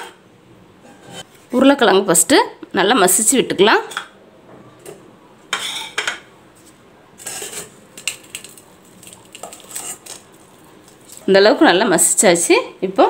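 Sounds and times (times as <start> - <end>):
potato masher scraping metal bowl: 7.2 - 7.8, 9.4 - 10.2.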